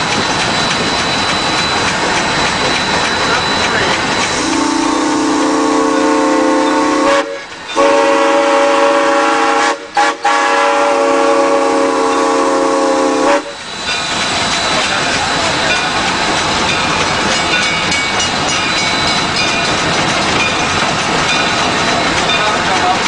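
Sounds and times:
steam whistle blasts: 4.2s - 13.7s.

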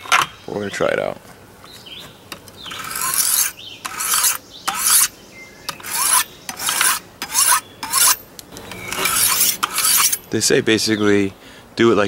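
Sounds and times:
knife blade scraping on sharpening stone: 2.7s - 5.1s, 5.7s - 10.3s.

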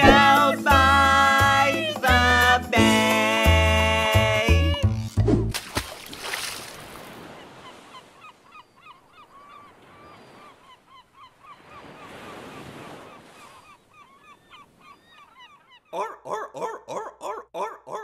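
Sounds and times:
surf washing in and out: 6.4s - 8.6s, 11.4s - 14.0s
water birds honking: 7.0s - 16.4s.

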